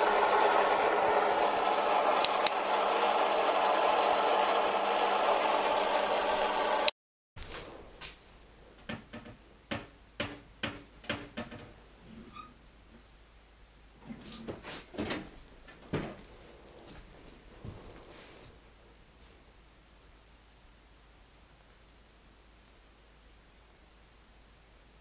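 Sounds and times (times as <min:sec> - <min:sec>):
click: 0:02.2 - 0:02.6
light knocks and creaks: 0:08.8 - 0:13.1.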